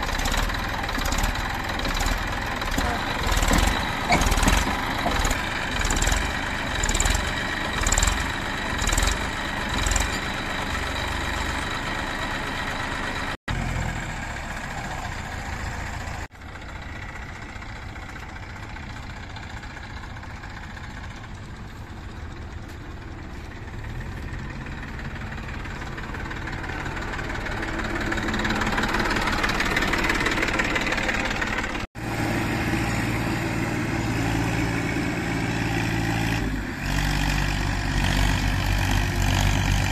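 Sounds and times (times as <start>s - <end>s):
tractor engine low drone: 0.0s - 39.9s
tractor engine straining: 0.0s - 39.9s.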